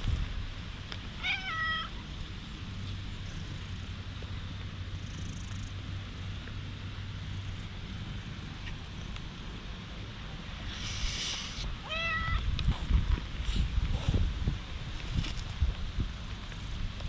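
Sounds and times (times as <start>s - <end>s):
cat meowing: 1.2s - 1.9s, 11.8s - 12.4s.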